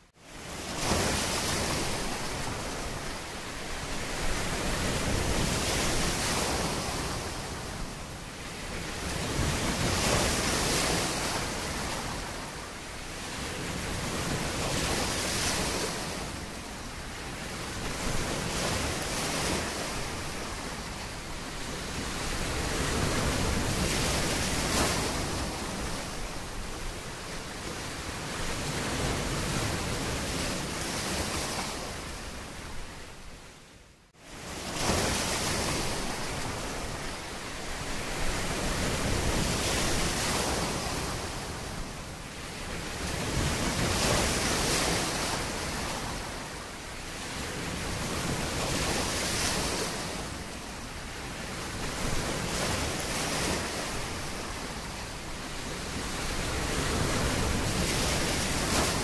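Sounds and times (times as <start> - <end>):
sea waves washing in: 34.1 - 59.0.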